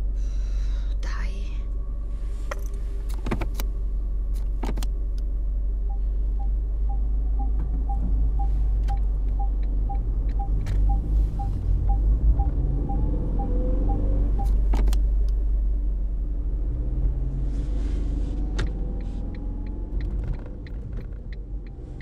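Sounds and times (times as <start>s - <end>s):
car engine and road rumble: 0.0s - 22.0s
sharp clicks and knocks: 2.5s - 3.7s, 4.3s - 4.9s, 14.4s - 15.4s, 18.5s - 21.8s
turn signal ticking: 3.0s - 15.6s, 18.4s - 22.0s.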